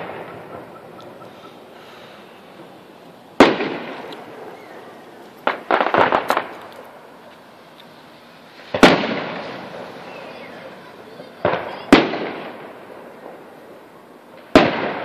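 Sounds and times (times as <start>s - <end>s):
distant firework booms: 0.0s - 6.7s, 8.5s - 15.0s
crackling firework pops: 0.0s - 15.0s.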